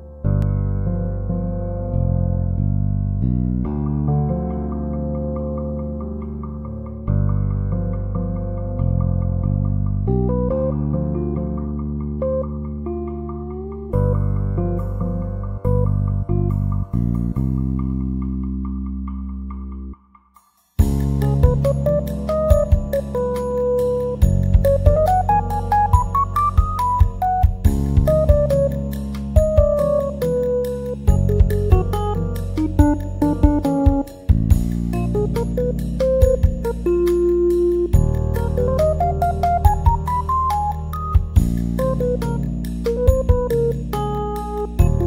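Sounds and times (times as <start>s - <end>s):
low bass line: 0.0s - 20.0s, 20.8s - 45.0s
instrumental background music: 0.0s - 45.0s
low beats: 20.8s - 45.0s
melody of short notes: 21.0s - 45.0s.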